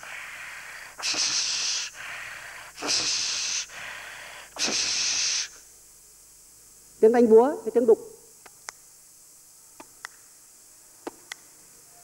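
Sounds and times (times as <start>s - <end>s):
man imitating handsaw with mouth: 1.0s - 2.0s, 2.8s - 3.7s, 4.6s - 5.6s.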